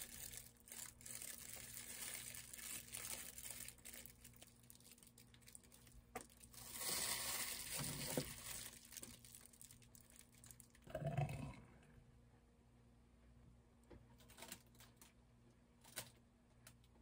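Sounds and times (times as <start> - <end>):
plastic gloves crinkling: 0.0 - 10.9
plastic piping bag crinkling: 0.0 - 10.9.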